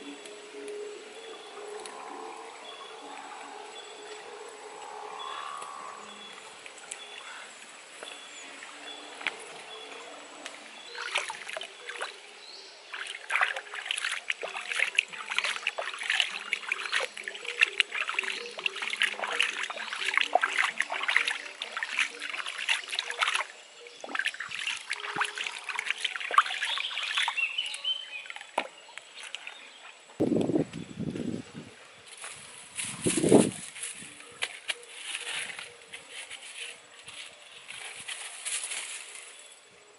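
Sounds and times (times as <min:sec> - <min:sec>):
hands splashing in water: 0:11.0 - 0:12.2, 0:12.9 - 0:27.7.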